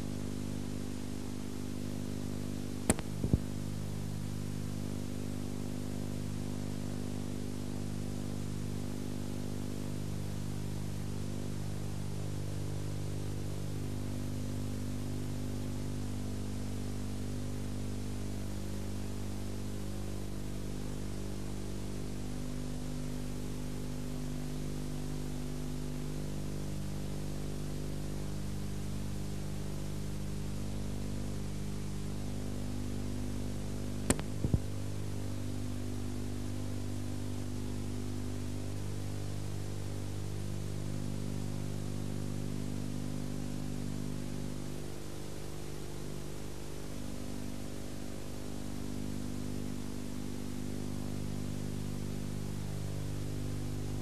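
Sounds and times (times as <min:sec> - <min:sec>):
electrical hum: 0:00.0 - 0:54.0
tape hiss: 0:00.0 - 0:54.0
sharp clicks: 0:02.9 - 0:03.4.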